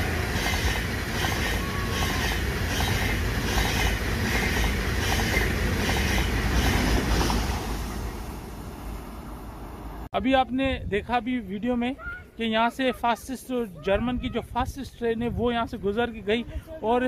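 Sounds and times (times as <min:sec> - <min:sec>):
high-speed train passing: 0:00.0 - 0:10.1.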